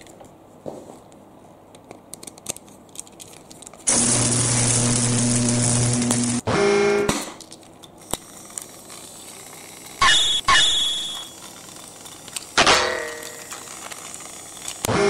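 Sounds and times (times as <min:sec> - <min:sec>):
toy parts clicking: 0:01.7 - 0:03.9
metallic clangs with ringing: 0:12.6 - 0:13.4.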